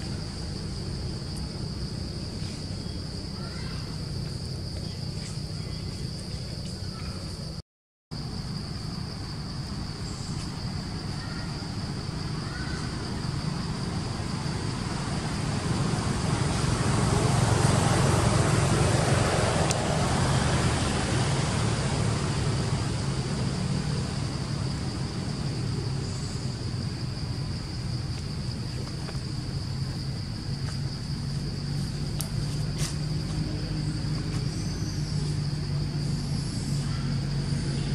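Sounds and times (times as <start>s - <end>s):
insects droning: 0.0s - 37.9s
passing vehicle rumble: 9.1s - 37.9s.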